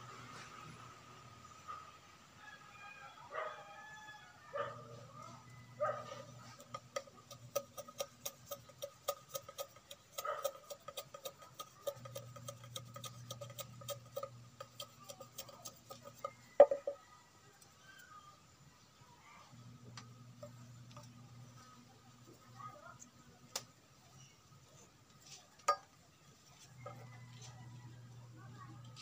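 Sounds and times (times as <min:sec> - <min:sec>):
machete knocking on wooden stool: 0:16.6 - 0:17.0.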